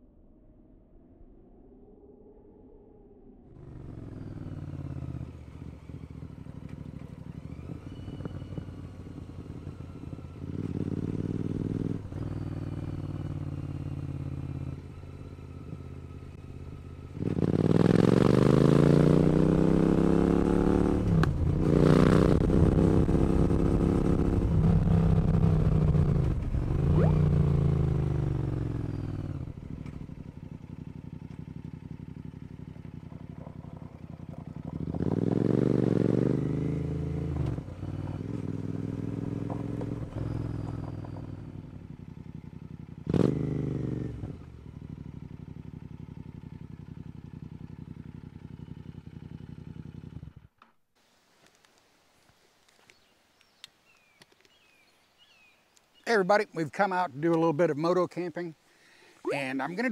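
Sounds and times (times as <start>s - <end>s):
motorcycle engine accelerating: 3.5s - 50.6s.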